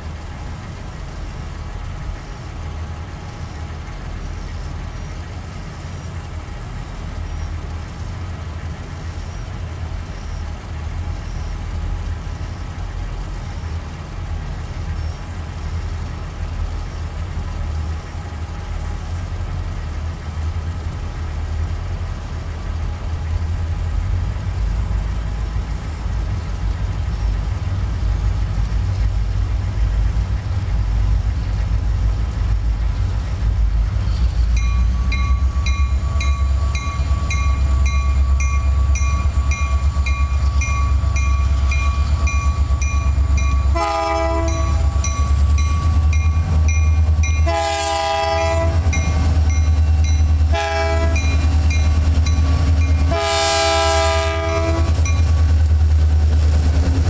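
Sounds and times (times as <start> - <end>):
train engine and rail rumble: 0.0 - 57.0
locomotive bell ringing: 34.4 - 53.4, 54.0 - 55.6.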